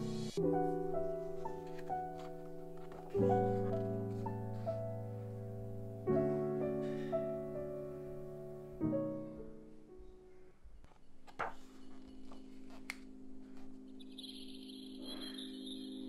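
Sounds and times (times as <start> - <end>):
soft piano chords: 0.0 - 10.6, 11.4 - 16.0
chime-like shimmer: 14.0 - 16.0.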